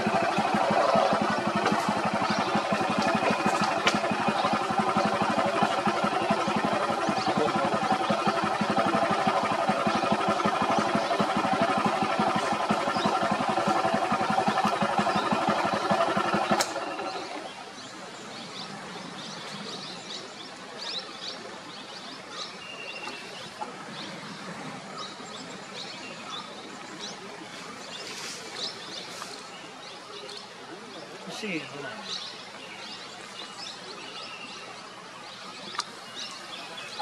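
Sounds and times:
vehicle engine idling: 0.0s - 20.2s
birds chirping: 0.0s - 37.0s.

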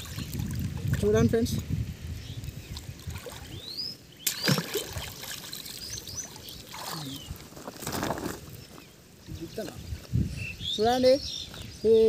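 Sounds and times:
water sloshing and splashing: 0.0s - 1.1s, 2.7s - 8.6s.

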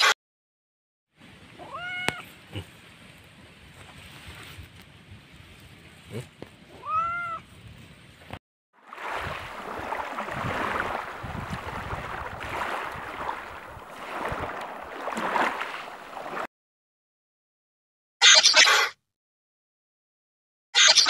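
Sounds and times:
cat meowing: 1.6s - 2.3s, 6.8s - 7.4s.

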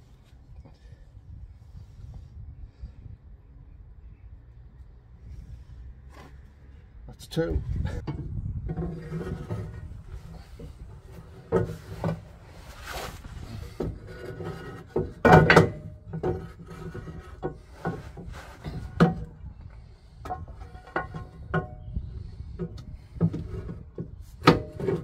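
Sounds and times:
metal spring clunking and scraping: 8.0s - 19.5s, 20.2s - 25.0s.

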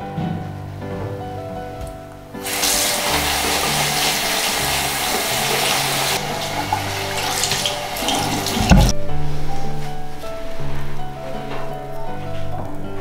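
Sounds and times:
tap water splashing into sink: 2.5s - 8.9s
thump: 8.6s - 9.0s.

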